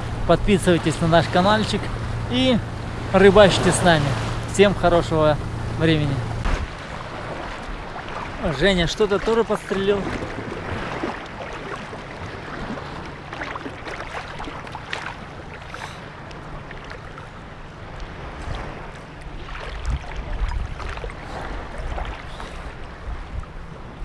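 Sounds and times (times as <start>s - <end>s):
sea water sloshing and splashing: 0.0s - 24.0s
wind buffeting microphone: 18.1s - 24.0s.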